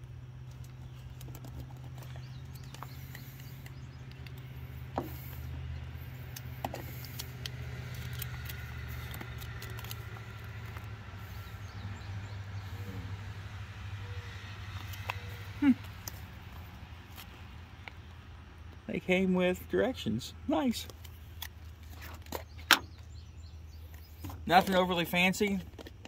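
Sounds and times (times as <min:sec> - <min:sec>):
low engine-like hum: 0:00.0 - 0:26.0
plastic crinkling and clicking: 0:06.6 - 0:10.9, 0:25.6 - 0:26.0.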